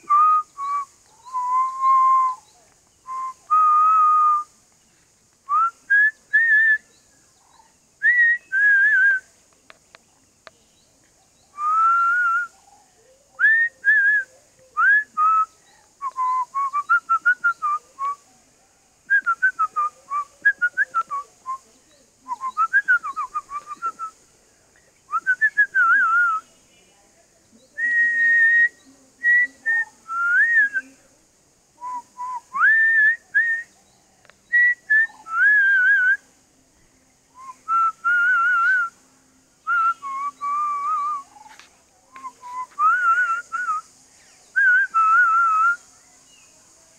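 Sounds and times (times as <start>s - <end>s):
person whistling: 42.3s - 43.8s.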